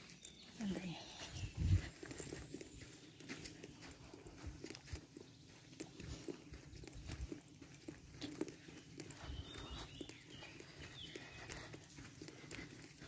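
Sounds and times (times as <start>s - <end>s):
footsteps on dirt path: 0.0s - 13.0s.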